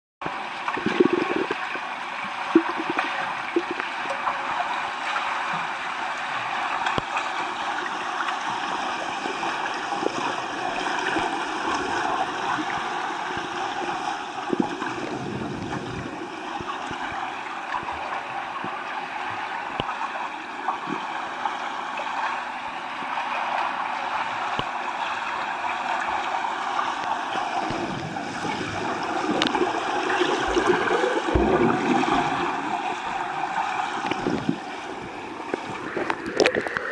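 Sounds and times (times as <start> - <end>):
underwater water and bubbles rushing: 0.2 - 36.9.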